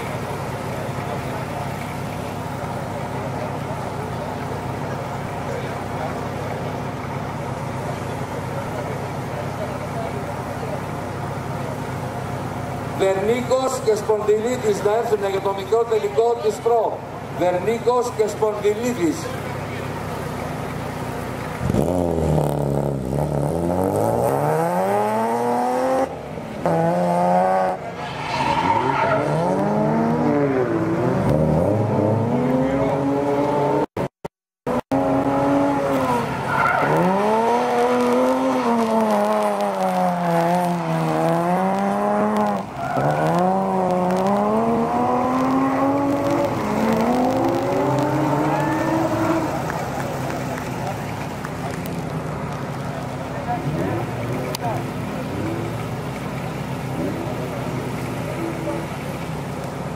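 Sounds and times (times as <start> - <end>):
car engine revving hard: 21.6 - 27.9, 29.0 - 33.9, 34.7 - 50.9
tyres screeching: 42.0 - 50.8.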